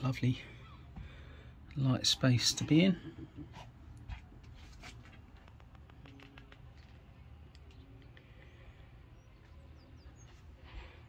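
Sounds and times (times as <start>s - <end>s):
faint small clicks: 5.4s - 8.3s.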